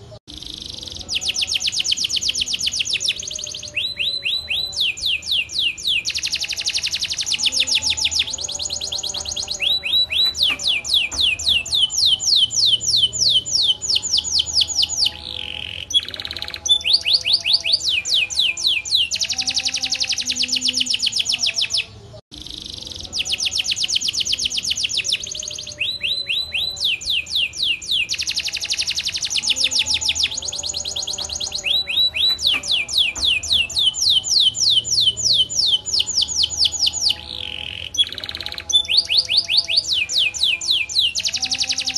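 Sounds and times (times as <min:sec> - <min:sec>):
canary singing trills: 0:00.0 - 0:41.9.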